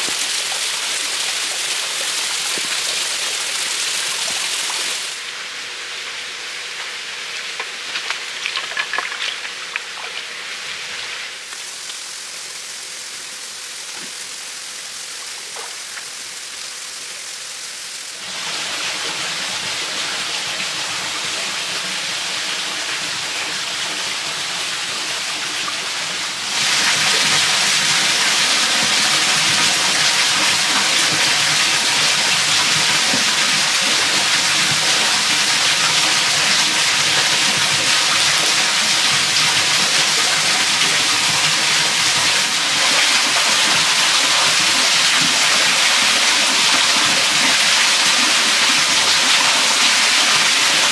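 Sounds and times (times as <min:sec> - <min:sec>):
stream running over rocks: 0:00.0 - 0:50.9.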